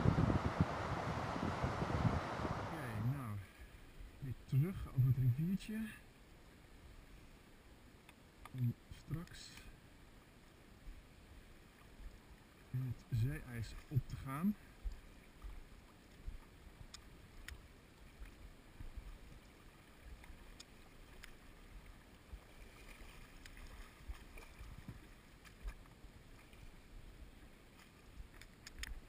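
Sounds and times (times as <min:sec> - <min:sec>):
soft ticks: 0:08.0 - 0:09.7, 0:16.4 - 0:17.6, 0:20.2 - 0:21.4, 0:28.3 - 0:29.0
river water sloshing: 0:13.8 - 0:29.0.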